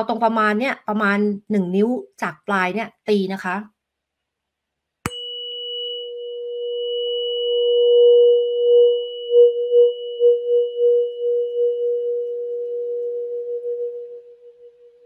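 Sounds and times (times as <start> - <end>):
tuning fork ringing: 5.1 - 15.0.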